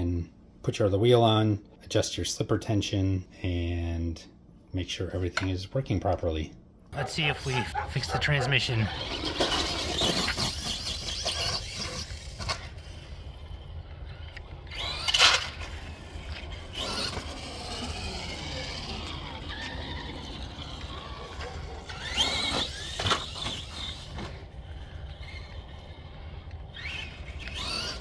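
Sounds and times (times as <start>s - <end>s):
rc truck motor whining: 7.1s - 28.0s.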